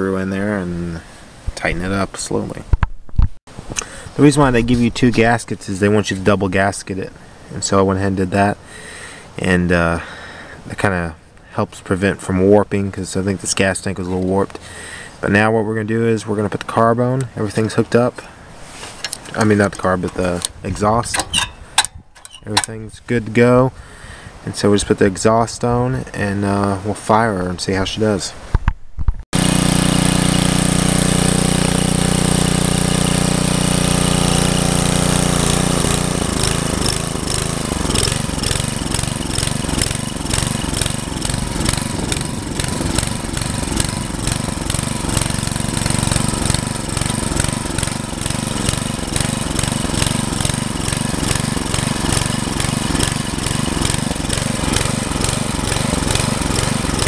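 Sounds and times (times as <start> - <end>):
small engine running: 29.4 - 57.0.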